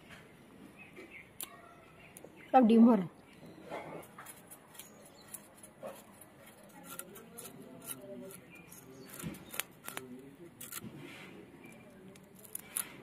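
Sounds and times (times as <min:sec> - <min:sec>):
fish scales scraped off with blade: 0:04.2 - 0:11.0.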